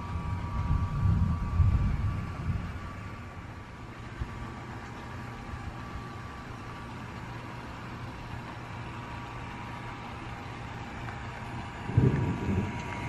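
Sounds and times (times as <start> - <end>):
low steady hum: 0.0 - 13.0
steady rain falling: 3.6 - 13.0.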